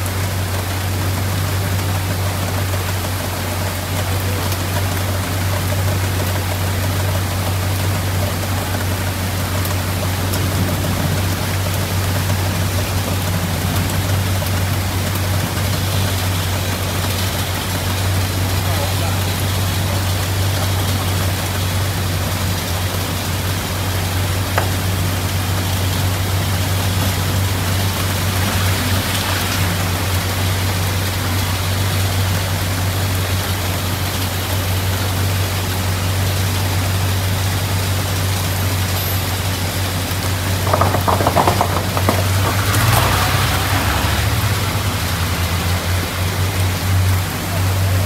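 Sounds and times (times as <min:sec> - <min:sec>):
rain pattering on machine: 0:00.0 - 0:48.0
vehicle engine idling: 0:00.0 - 0:48.0
rapid rattling: 0:40.3 - 0:43.2.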